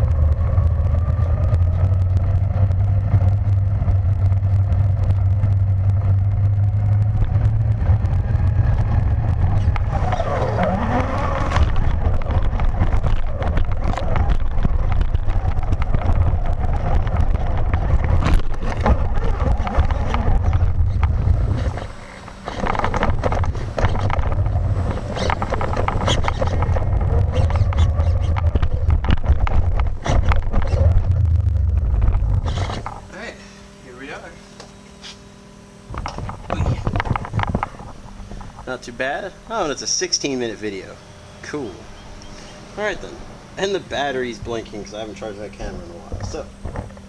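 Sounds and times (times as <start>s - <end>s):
toy truck motor whining: 8.0s - 33.0s.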